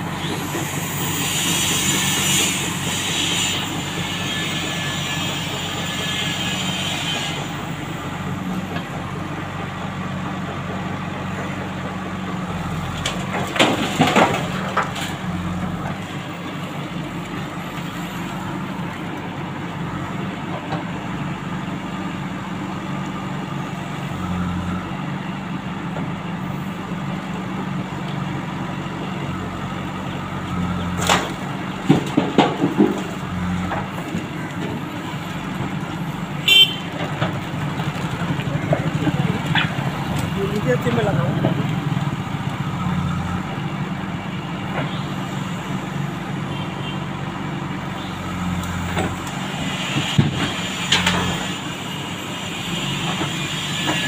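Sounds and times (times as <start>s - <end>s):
diesel engine running under load: 0.0s - 54.0s.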